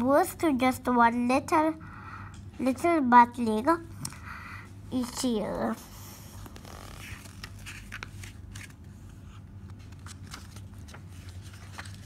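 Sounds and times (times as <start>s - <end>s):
low steady hum: 0.0s - 12.0s
book pages rustling: 6.3s - 12.0s.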